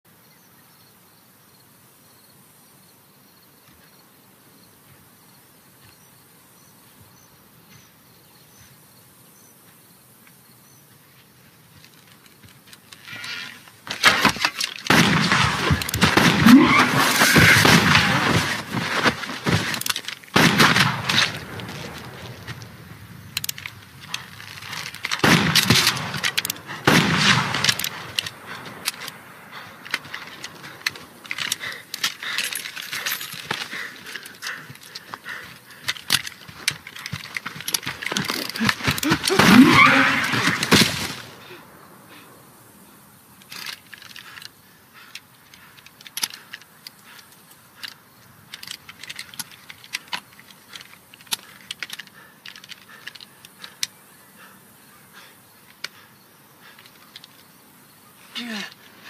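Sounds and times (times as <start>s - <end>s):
quiet clicks and rustles: 11.0s - 41.5s, 43.3s - 54.2s, 55.5s - 59.0s
gunshots echoing: 14.0s - 31.6s, 38.0s - 41.4s
gunfire burst: 14.9s - 19.6s, 20.3s - 22.9s, 25.1s - 29.1s.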